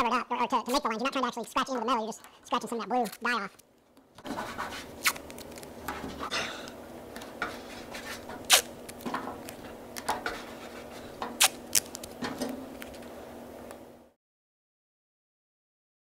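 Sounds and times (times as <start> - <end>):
masking tape pulled and torn: 4.8 - 5.7, 7.9 - 10.1, 11.3 - 13.0.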